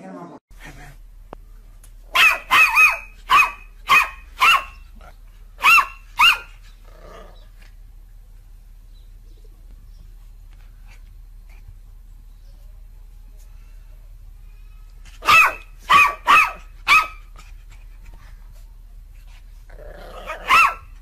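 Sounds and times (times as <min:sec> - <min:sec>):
puppy barking: 0:02.1 - 0:04.9, 0:05.6 - 0:06.6, 0:15.2 - 0:17.3, 0:20.2 - 0:21.0.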